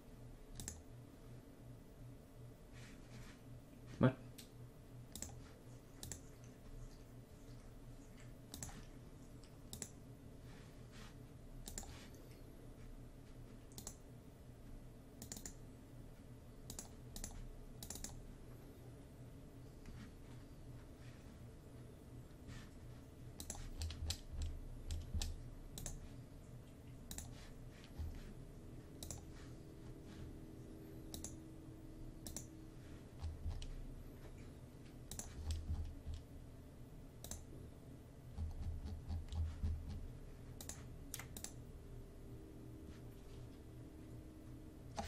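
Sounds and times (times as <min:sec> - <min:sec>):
mouse and keyboard clicks: 0:00.6 - 0:00.8, 0:06.0 - 0:06.5, 0:08.5 - 0:08.9, 0:09.7 - 0:10.0, 0:11.6 - 0:12.0, 0:13.7 - 0:14.0, 0:15.2 - 0:15.6, 0:16.7 - 0:18.2, 0:23.4 - 0:26.1, 0:27.1 - 0:28.1, 0:29.0 - 0:29.2, 0:31.1 - 0:31.4, 0:32.2 - 0:32.5, 0:35.1 - 0:36.3, 0:40.6 - 0:41.6.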